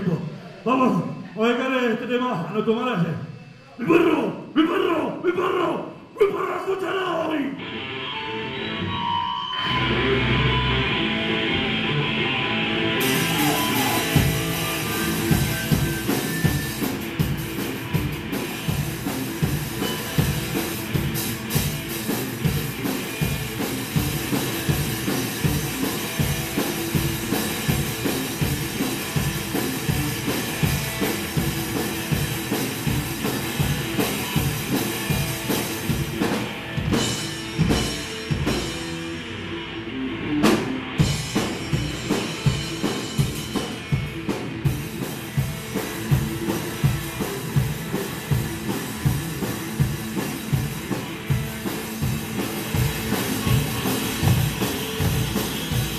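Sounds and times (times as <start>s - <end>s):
rock band playing: 7.5s - 55.9s
drum kit beat: 13.0s - 39.2s, 40.4s - 55.9s.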